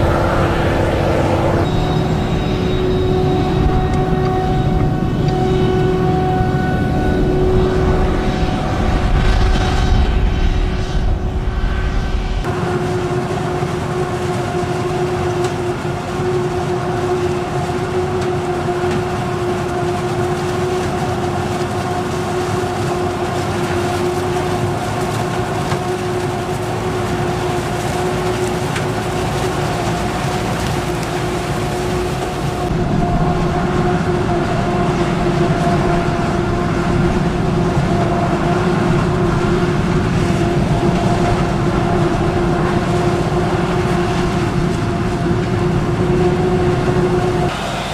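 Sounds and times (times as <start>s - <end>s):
low rumble: 0.0s - 13.1s
constant hum: 0.0s - 47.9s
forage harvester machine drone: 0.0s - 47.9s.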